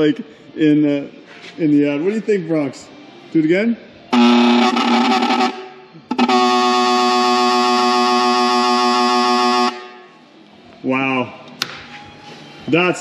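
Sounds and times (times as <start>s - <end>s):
electric horn buzzing blasts: 4.1s - 10.2s.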